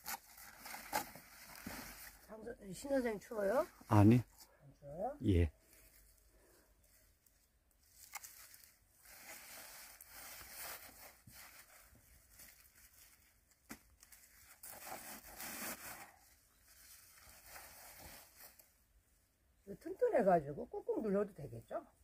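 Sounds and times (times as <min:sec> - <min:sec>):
rustling and tearing of greens: 0:07.2 - 0:14.8.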